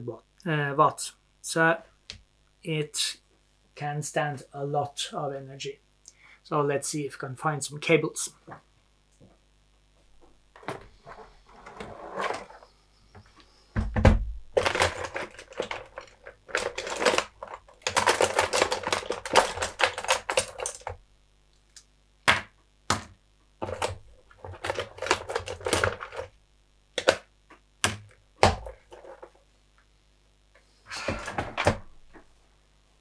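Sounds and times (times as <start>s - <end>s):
plastic and metal clattering: 13.8s - 21.0s, 23.0s - 26.3s.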